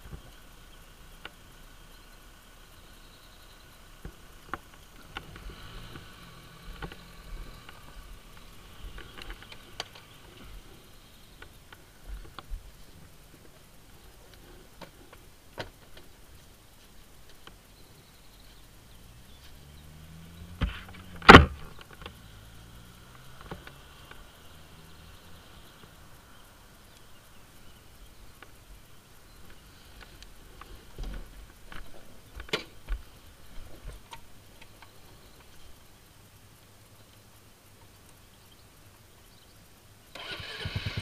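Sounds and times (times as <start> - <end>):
scooter seat thump: 20.6 - 21.7.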